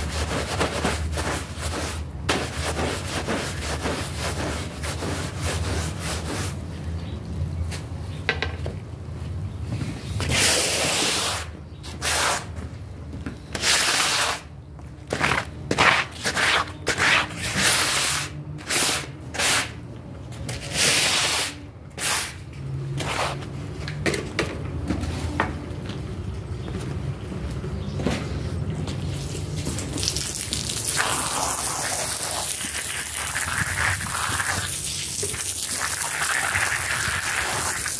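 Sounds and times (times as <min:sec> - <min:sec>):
water jet spraying: 0:29.2 - 0:37.9.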